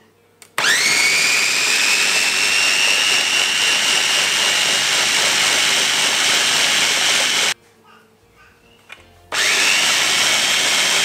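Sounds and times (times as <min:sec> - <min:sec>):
food chopper motor whining: 0:00.6 - 0:07.6, 0:09.3 - 0:11.0.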